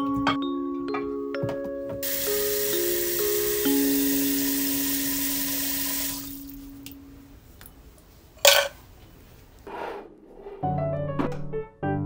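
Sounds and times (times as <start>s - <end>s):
water running into metal pot: 2.0s - 6.6s.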